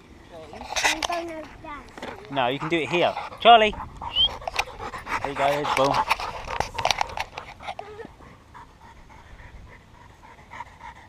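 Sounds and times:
dog panting: 0:00.4 - 0:11.0
sharp knocks and rustles: 0:04.3 - 0:07.8.

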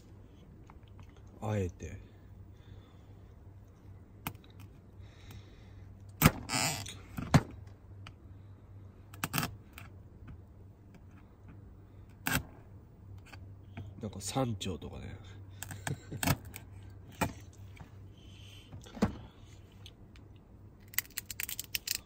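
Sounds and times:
low steady hum: 0:00.0 - 0:22.0
crab shells cracking: 0:20.8 - 0:22.0.

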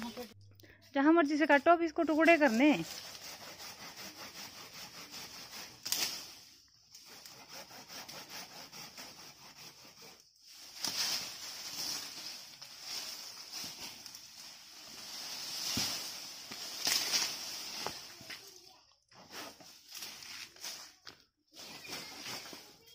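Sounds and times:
branch rustling: 0:02.2 - 0:07.8, 0:10.4 - 0:22.9
hand saw cutting branch: 0:02.2 - 0:14.2, 0:15.8 - 0:18.2.

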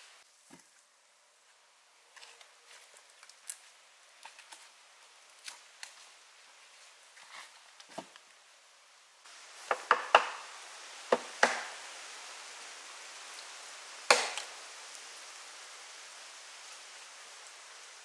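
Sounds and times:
hatchet chopping wood: 0:09.6 - 0:10.4, 0:11.1 - 0:11.8, 0:14.1 - 0:14.5.

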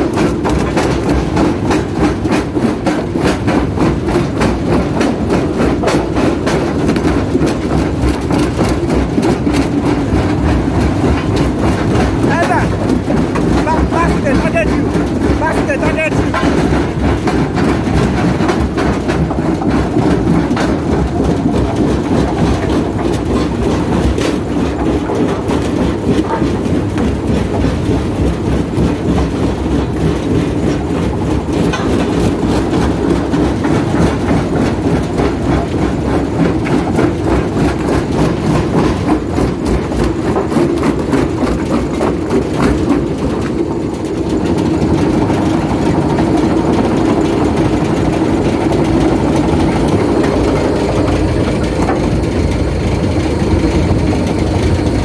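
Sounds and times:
heavy machine rumble: 0:00.0 - 0:55.0.

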